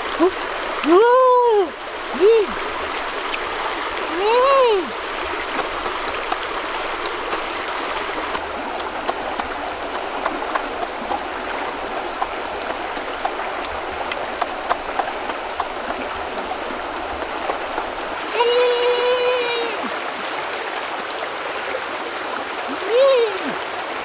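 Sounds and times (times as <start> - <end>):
stream running over rocks: 0.0 - 24.0
person chewing food: 5.6 - 7.6, 8.2 - 18.1.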